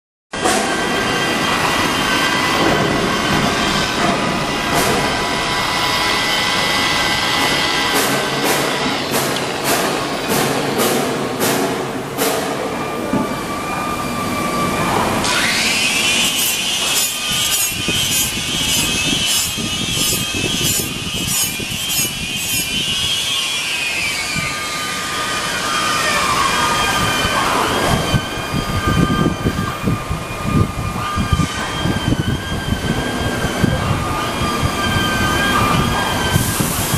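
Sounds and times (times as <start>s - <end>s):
electric polisher motor whine: 15.3s - 26.9s
abrasive rasping on steel: 15.6s - 23.6s.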